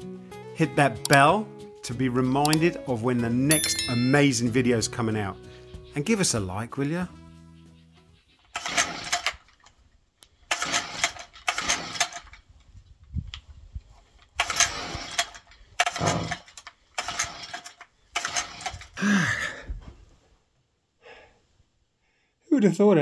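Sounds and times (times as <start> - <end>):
recoil starter cord whirring: 10.5 - 12.4, 14.4 - 16.4, 17.0 - 19.0.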